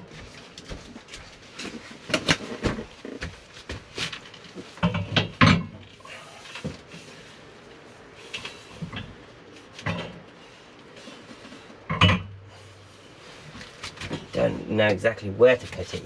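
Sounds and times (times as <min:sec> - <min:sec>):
water heater clunking on metal rails: 0:04.8 - 0:05.8, 0:11.9 - 0:12.4.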